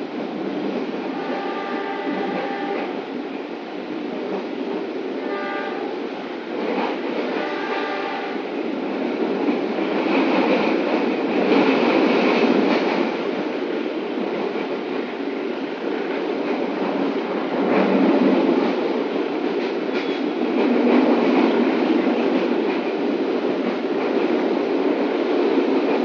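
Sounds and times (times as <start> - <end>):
train wheels rumbling and rattling: 0.0 - 26.0.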